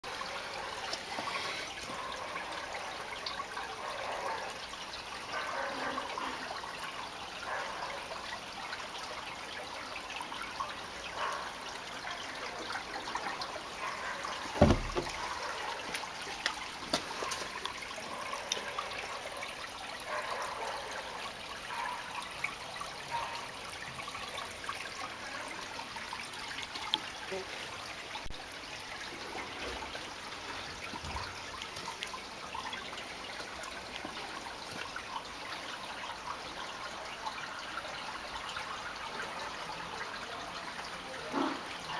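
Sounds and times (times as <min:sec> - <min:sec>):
water splashing and trickling: 0:00.0 - 0:41.9
single thump: 0:14.6 - 0:15.2.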